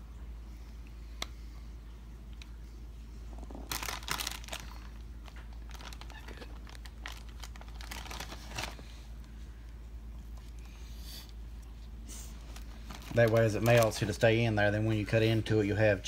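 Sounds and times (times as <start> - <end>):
low steady hum: 0.0 - 16.0
sliced ham crinkling and rustling: 3.5 - 9.3, 11.6 - 14.4.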